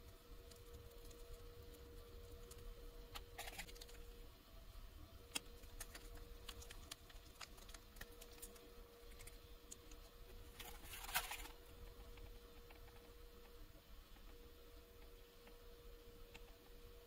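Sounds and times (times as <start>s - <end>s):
faint steady hum: 0.0s - 17.0s
plastic sachet crinkling: 5.6s - 9.9s.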